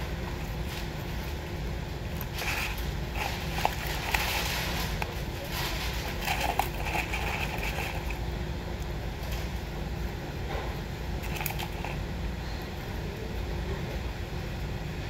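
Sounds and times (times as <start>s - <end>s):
steady low hum: 0.0s - 15.0s
paper cartons rustling: 2.2s - 8.3s, 11.2s - 12.0s.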